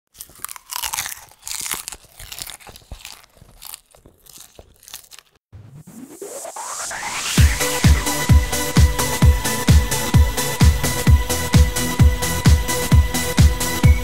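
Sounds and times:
rising whoosh: 5.6 - 8.0
noisy swishes: 5.6 - 8.1
electronic music: 5.6 - 14.0.

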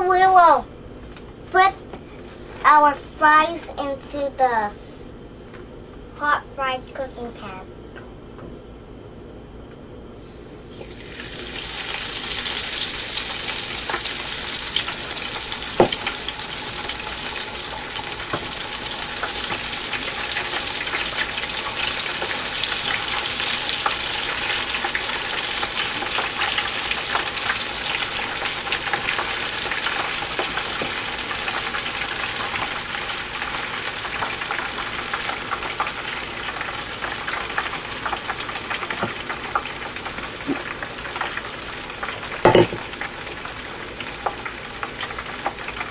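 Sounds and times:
fries sizzling in hot oil: 10.6 - 45.9.

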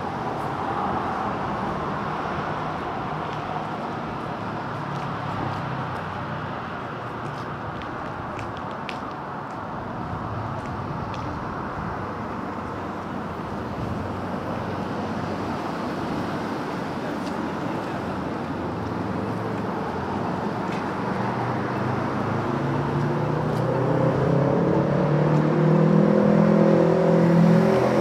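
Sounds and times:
passing cars rumble: 0.0 - 28.0
vehicle engine close by: 10.0 - 28.0.

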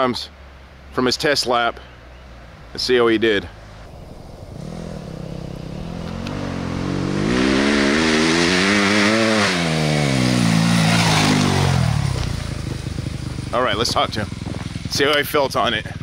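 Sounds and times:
dirt bike passing by: 3.9 - 16.0.

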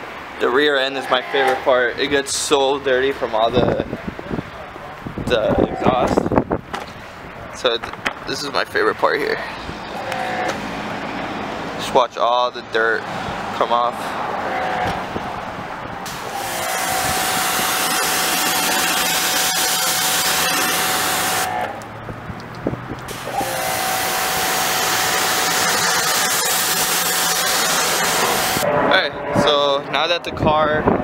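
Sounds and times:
pressure washer spray hissing: 16.1 - 21.5, 23.1 - 28.6
pressure washer whine: 16.1 - 21.7, 23.1 - 28.7.

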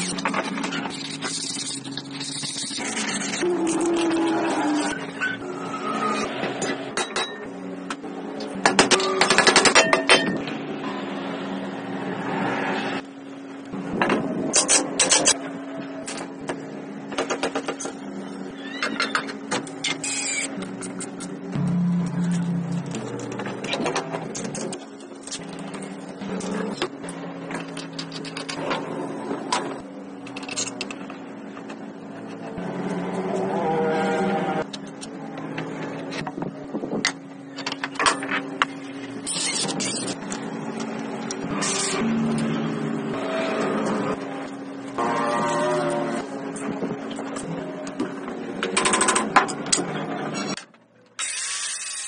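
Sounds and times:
steady low hum: 19.7 - 33.4
low hum: 20.3 - 48.4.

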